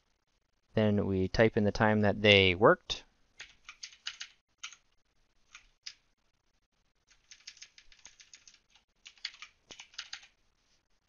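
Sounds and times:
faint keyboard typing: 0:03.4 - 0:06.1, 0:07.0 - 0:10.4.

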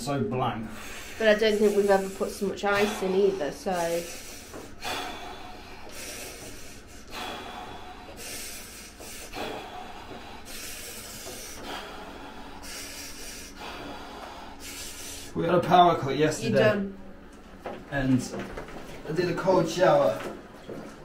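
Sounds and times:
man breathing heavily: 0:00.7 - 0:15.4.

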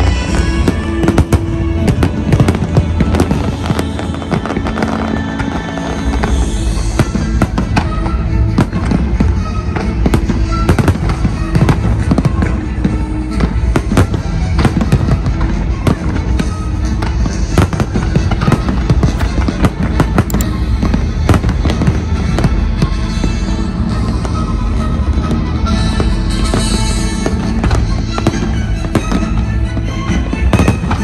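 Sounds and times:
music: 0:00.0 - 0:31.0
firework shells bursting: 0:17.8 - 0:22.1.

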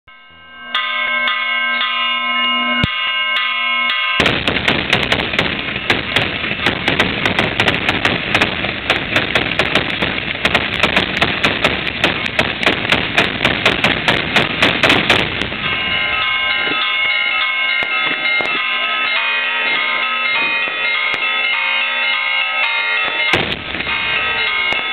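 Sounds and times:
bells ringing: 0:00.1 - 0:07.7, 0:15.2 - 0:24.9
bang: 0:04.2 - 0:16.8, 0:23.1 - 0:24.9
firecrackers crackling and popping: 0:04.2 - 0:21.4, 0:23.0 - 0:24.9.

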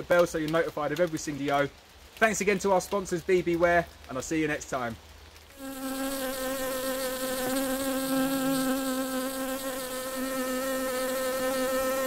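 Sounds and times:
bee buzzing: 0:05.5 - 0:12.0.

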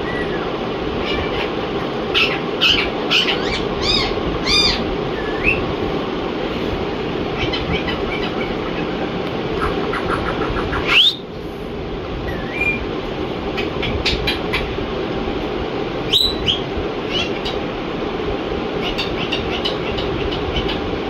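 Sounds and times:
parakeet whistling: 0:00.0 - 0:00.5, 0:02.1 - 0:05.7, 0:07.4 - 0:09.0, 0:09.6 - 0:11.3, 0:12.3 - 0:12.8, 0:16.1 - 0:17.6, 0:18.8 - 0:20.8
parakeet chattering: 0:01.0 - 0:05.7, 0:07.3 - 0:11.3, 0:13.5 - 0:14.8, 0:16.1 - 0:17.6, 0:18.8 - 0:20.9.

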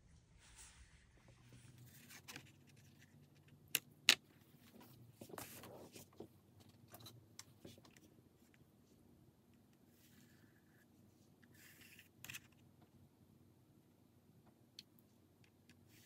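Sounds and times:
paper rustling: 0:04.5 - 0:06.3.

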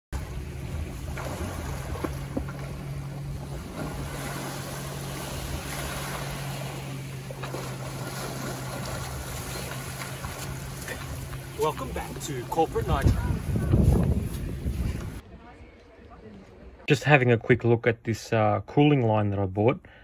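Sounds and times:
wind: 0:00.1 - 0:20.0
small waves lapping: 0:00.2 - 0:15.2
steady low hum: 0:00.2 - 0:15.2
swimmer splashing: 0:00.2 - 0:15.2.

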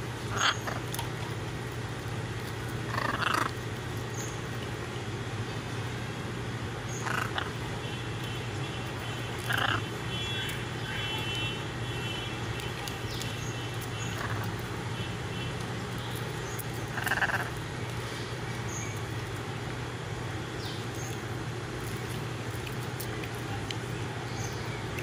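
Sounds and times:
steady low hum: 0:00.0 - 0:25.0
macaws making raspy calls: 0:00.2 - 0:01.0, 0:02.8 - 0:03.6, 0:06.9 - 0:07.6, 0:09.3 - 0:10.1, 0:13.4 - 0:14.7, 0:16.2 - 0:17.6.

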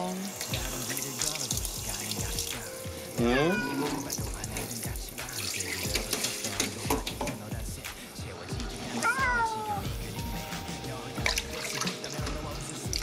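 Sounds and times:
water running from bathtub tap: 0:00.0 - 0:07.9, 0:08.6 - 0:13.0
cat crying: 0:03.2 - 0:04.1, 0:08.9 - 0:09.8.

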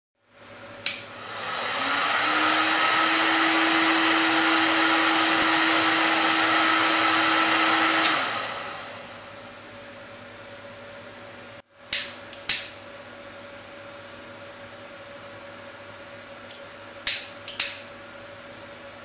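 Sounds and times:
heat gun fan blowing: 0:00.4 - 0:12.9.

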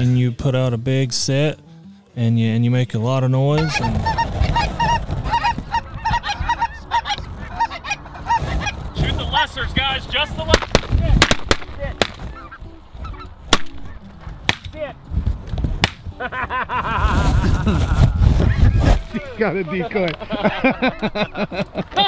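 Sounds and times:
geese honking: 0:03.6 - 0:10.5, 0:11.4 - 0:14.4.

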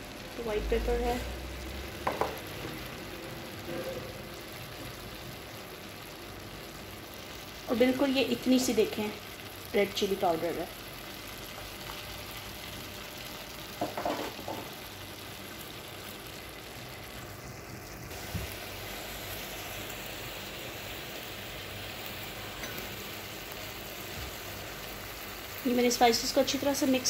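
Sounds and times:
chicken sizzling in a pot: 0:00.0 - 0:27.0.

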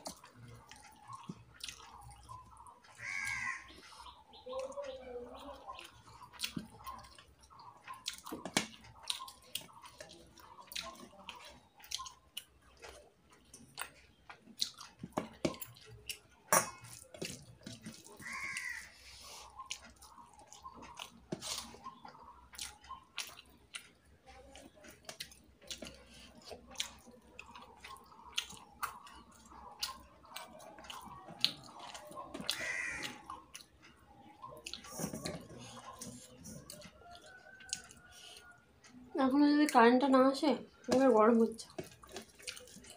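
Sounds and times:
chewing: 0:00.0 - 0:42.9.

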